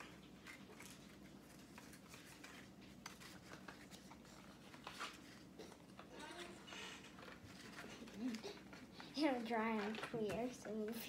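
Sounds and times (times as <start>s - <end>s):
paper rustling and tapping: 0.0s - 11.0s.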